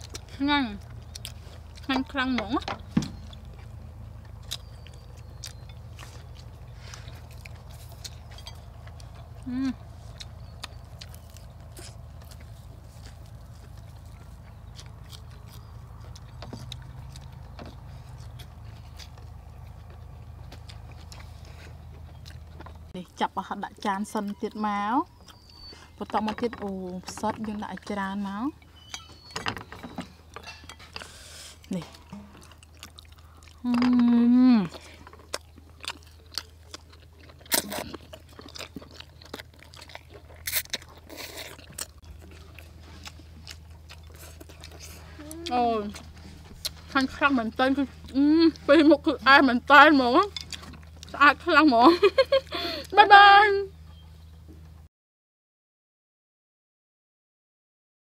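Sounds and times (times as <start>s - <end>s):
wet chewing clicks: 0.0s - 54.7s
steady low hum: 29.7s - 54.9s.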